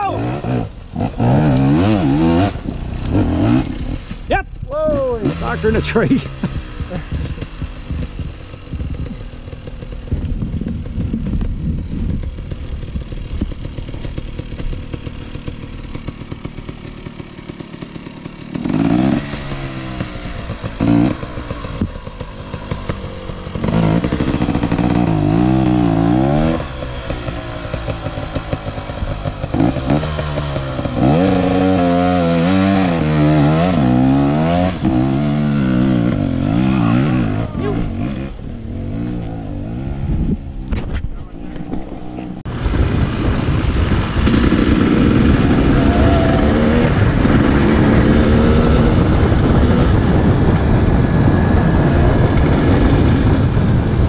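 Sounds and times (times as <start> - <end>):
dirt bike engine revving: 0.0 - 42.5, 44.2 - 50.6.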